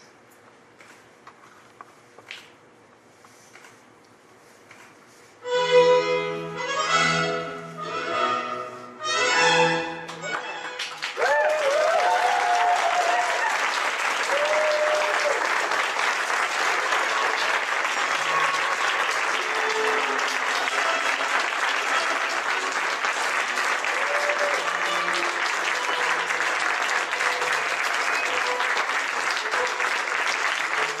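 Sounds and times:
audience applauding: 10.2 - 31.0.

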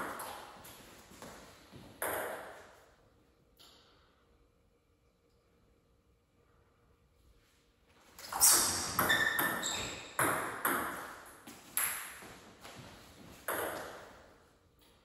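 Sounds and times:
table tennis ball pinging: 8.4 - 12.3, 13.4 - 14.2.

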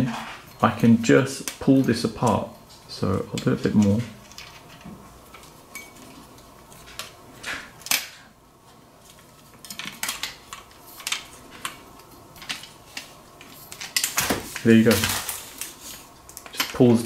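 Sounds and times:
metal tubes clicking and clinking: 9.1 - 17.0.

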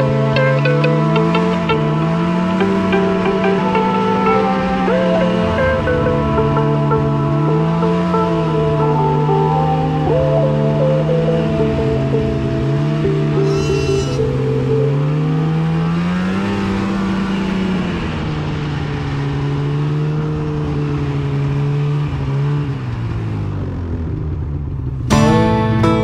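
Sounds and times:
snowmobile engine revving: 0.0 - 23.5.

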